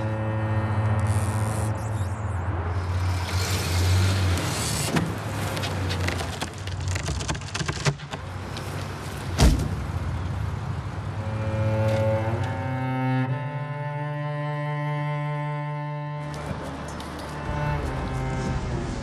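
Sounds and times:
engine hum: 0.0s - 19.0s
tree trunk cracking and splintering: 5.5s - 8.4s.

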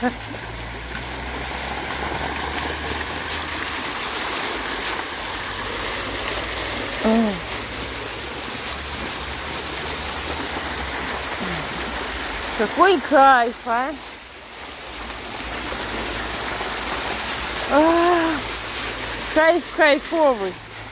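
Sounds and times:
fountain jets splashing water: 0.0s - 20.9s
person exclaiming: 7.0s - 7.5s, 17.7s - 18.5s.

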